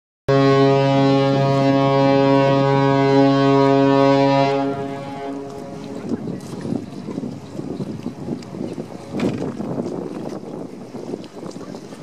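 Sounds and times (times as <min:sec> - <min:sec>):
deep ship's horn blast: 0:00.3 - 0:06.6.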